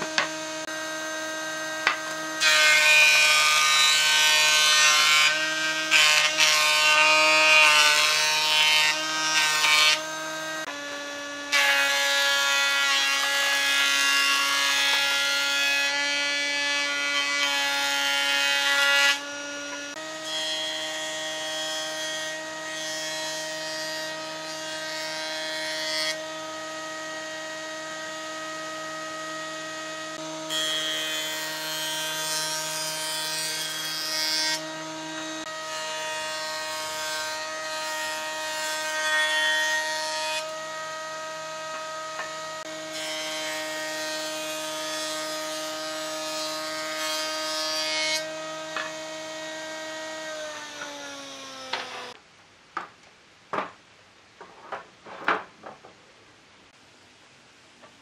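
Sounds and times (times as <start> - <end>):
planer cutting board: 0.0 - 0.8, 1.7 - 15.5, 50.1 - 52.2.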